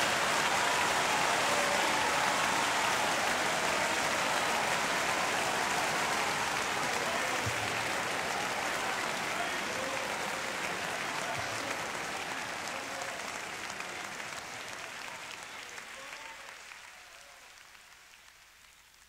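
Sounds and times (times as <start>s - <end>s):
crowd applauding: 0.0s - 19.0s.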